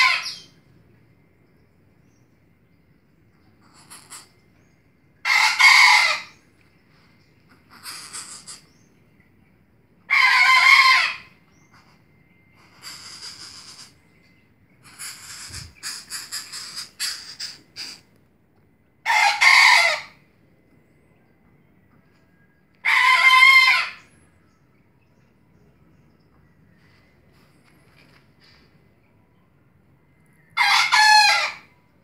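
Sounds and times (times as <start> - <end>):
bird harsh rasping calls: 3.6 - 4.3, 7.6 - 8.9, 12.6 - 14.0, 14.8 - 18.1.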